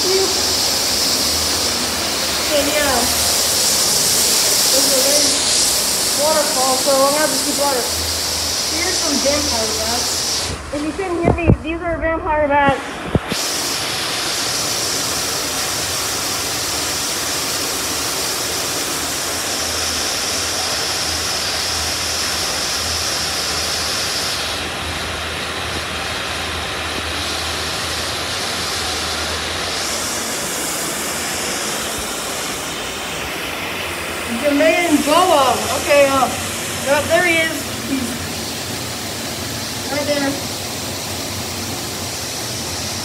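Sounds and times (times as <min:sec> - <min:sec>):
large waterfall rushing: 0:00.0 - 0:11.2, 0:12.7 - 0:43.0.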